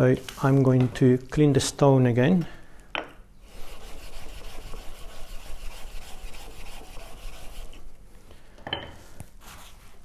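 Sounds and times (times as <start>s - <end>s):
stone rubbing on whetstone: 3.5s - 7.8s.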